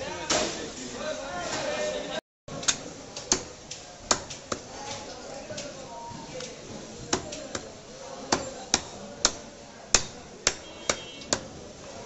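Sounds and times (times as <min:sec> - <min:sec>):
cleaver chopping on a block: 0:02.7 - 0:04.7, 0:07.1 - 0:07.7, 0:08.3 - 0:11.5.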